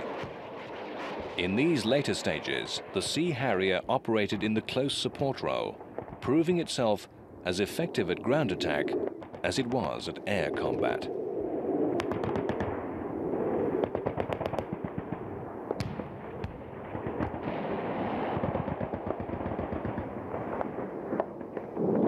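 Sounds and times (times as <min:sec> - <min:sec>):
machine-gun fire: 0:12.0 - 0:12.7.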